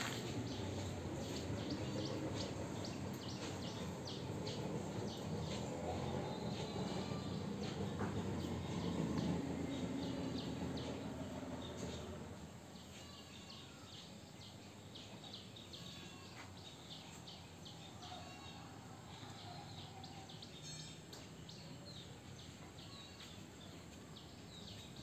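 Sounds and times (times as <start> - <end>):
small birds chirping: 0.0 - 12.2.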